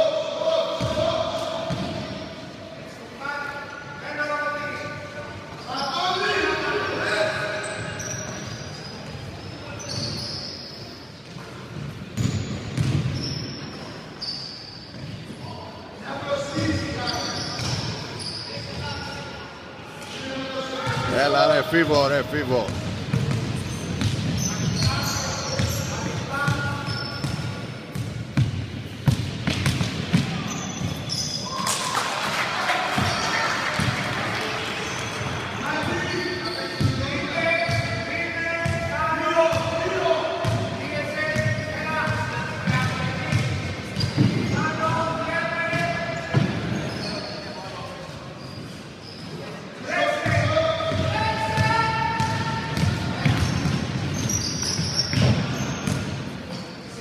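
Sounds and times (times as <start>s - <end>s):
shoe squeaks: 5.5s - 6.2s, 7.0s - 11.5s, 12.2s - 15.6s, 16.4s - 19.4s, 23.2s - 27.8s, 30.3s - 31.6s, 34.8s - 38.6s, 43.3s - 44.8s, 45.6s - 49.6s, 53.2s - 57.0s
basketball bouncing on wooden floor: 12.2s - 13.1s.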